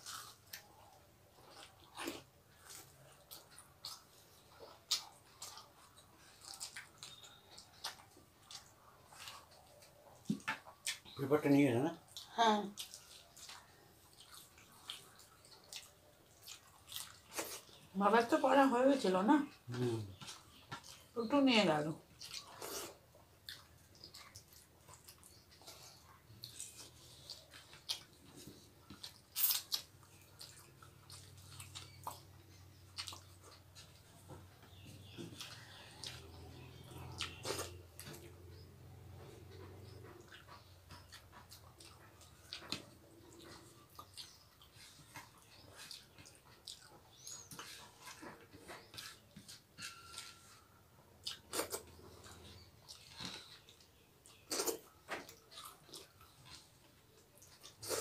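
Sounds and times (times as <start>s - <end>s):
people chewing: 0.0s - 58.0s
rice mixed by hand on plates: 44.1s - 50.8s.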